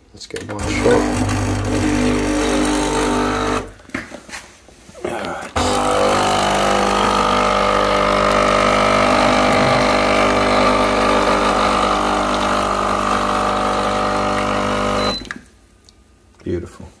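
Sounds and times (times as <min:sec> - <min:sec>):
espresso machine pump buzzing: 0:00.6 - 0:03.7, 0:05.6 - 0:15.3.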